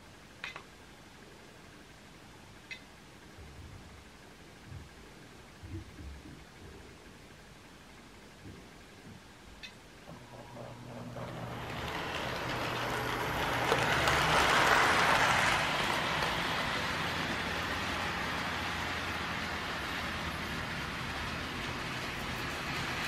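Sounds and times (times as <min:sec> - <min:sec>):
model train motor hum and rattle: 0:10.1 - 0:23.0.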